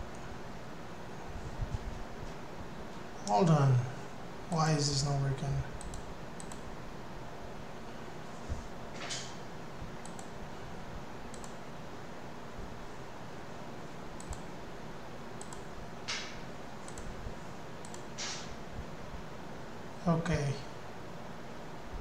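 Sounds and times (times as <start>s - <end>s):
faint steady hiss: 0.0s - 22.0s
computer mouse clicks: 5.8s - 6.7s, 10.0s - 10.4s, 11.3s - 11.6s, 14.2s - 14.5s, 15.4s - 17.2s, 17.8s - 18.4s.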